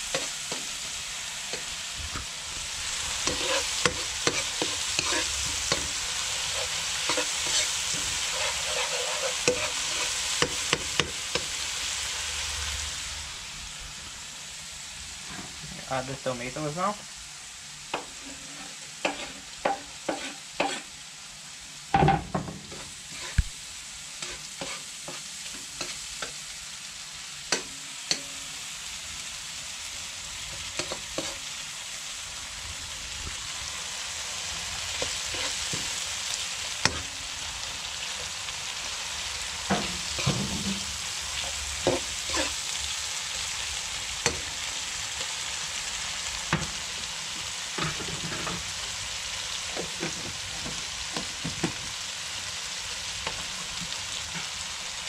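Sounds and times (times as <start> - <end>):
food sizzling in oil: 0.0 - 55.0
metal spoon scraping pan: 3.2 - 11.5, 18.0 - 20.9, 22.7 - 23.4, 24.2 - 26.4, 35.0 - 35.8, 39.7 - 42.6, 47.8 - 48.7.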